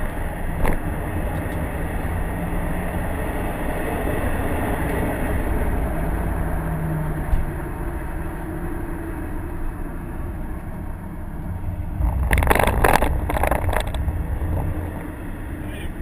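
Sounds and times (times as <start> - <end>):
car engine drone: 0.0 - 16.0
road and tyre noise: 0.0 - 16.0
rushing noise bursts: 11.8 - 15.2.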